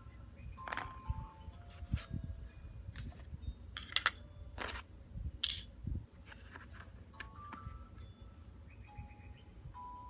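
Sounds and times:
metal screws and tools clicking: 0:03.8 - 0:04.8, 0:05.4 - 0:05.7.

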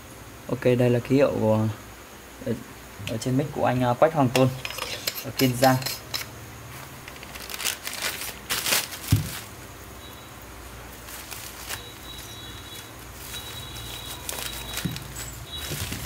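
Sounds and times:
rustling of small objects: 0:05.4 - 0:09.6, 0:10.9 - 0:16.0
faint high steady tone: 0:09.9 - 0:16.0.

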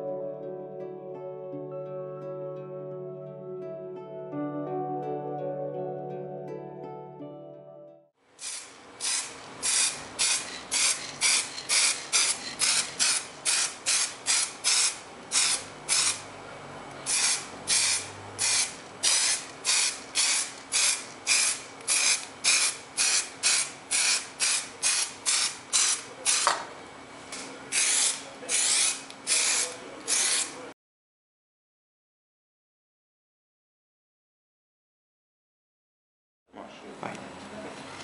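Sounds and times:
spray paint can spraying: 0:08.4 - 0:16.2, 0:17.1 - 0:26.6, 0:27.7 - 0:30.6.

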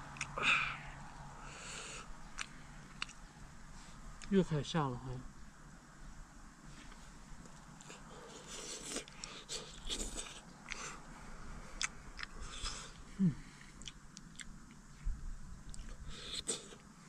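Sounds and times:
person chewing and slurping: 0:07.8 - 0:11.0, 0:15.7 - 0:16.9.

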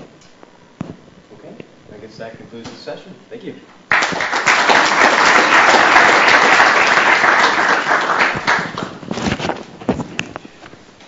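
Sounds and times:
audience applauding: 0:03.9 - 0:09.0.

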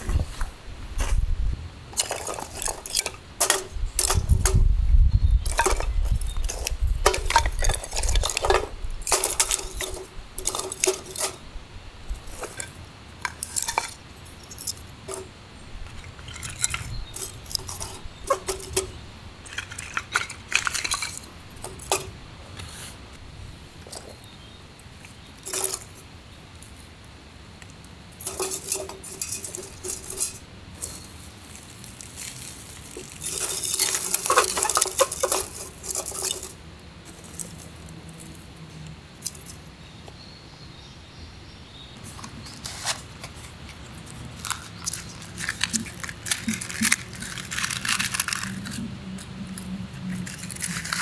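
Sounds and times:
metal cookware clinking: 0:02.0 - 0:04.6, 0:05.4 - 0:11.4, 0:15.9 - 0:22.1, 0:25.4 - 0:25.9, 0:28.2 - 0:31.0, 0:33.2 - 0:36.6.

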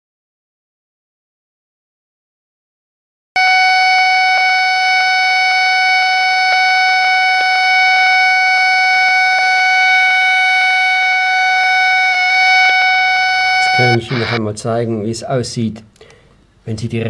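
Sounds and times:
high buzzing radio tone: 0:03.4 - 0:14.4.

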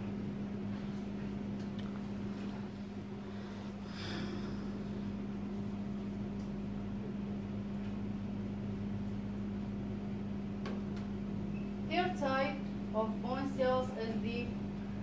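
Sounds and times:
low electrical hum: 0:00.0 - 0:15.0
fan-like hiss: 0:00.6 - 0:07.1.

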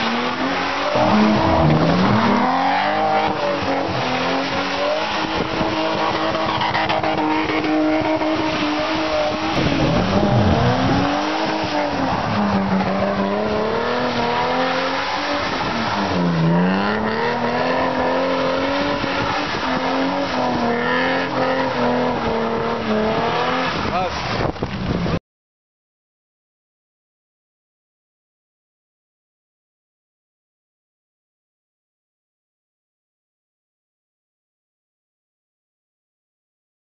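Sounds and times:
car engine revving: 0:00.0 - 0:24.2
tyres squealing on wet road: 0:00.0 - 0:25.2.

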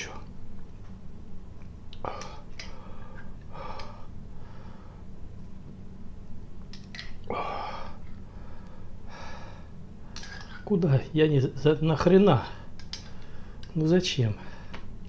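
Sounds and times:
low hum: 0:00.0 - 0:15.0
man panting: 0:02.0 - 0:05.0, 0:07.3 - 0:09.7.

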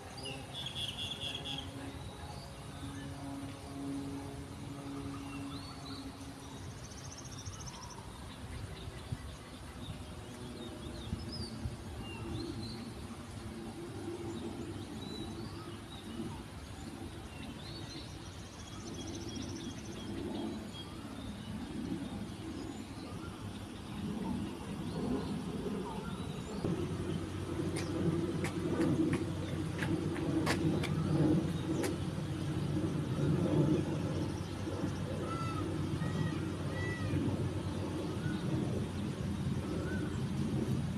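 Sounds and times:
road traffic rumble: 0:09.6 - 0:40.9
small birds chirping: 0:14.1 - 0:40.8.

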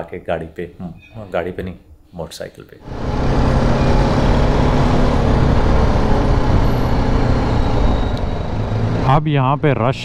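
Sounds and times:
road and wind noise: 0:02.8 - 0:10.0.

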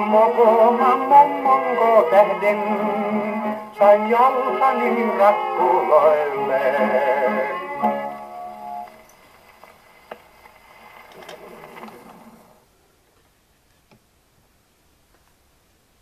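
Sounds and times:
gramophone record music: 0:00.0 - 0:12.6
record surface hiss: 0:00.0 - 0:16.0
record clicks and crackles: 0:07.8 - 0:14.1.

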